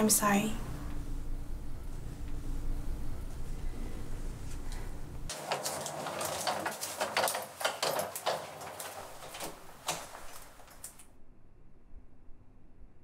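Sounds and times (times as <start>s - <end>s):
clothing and handbag rustling: 3.3s - 11.0s
footsteps: 4.4s - 11.0s
door being handled: 5.3s - 11.0s.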